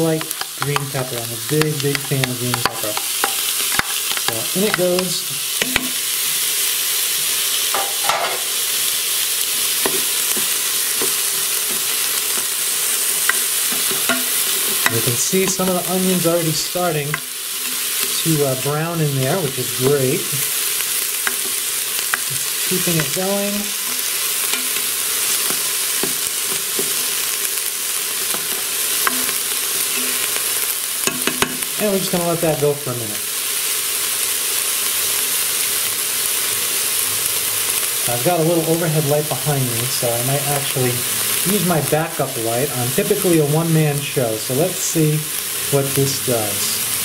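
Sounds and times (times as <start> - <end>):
vegetables sizzling in pot: 0.0 - 47.0
spoon clicking and scraping pot: 0.2 - 1.0, 1.6 - 4.8, 13.2 - 15.6, 28.3 - 29.4.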